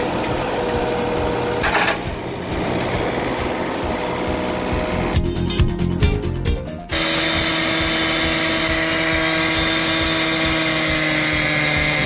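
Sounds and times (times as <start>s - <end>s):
background music: 0.3s - 12.0s
cut-off saw cutting concrete: 6.9s - 12.0s.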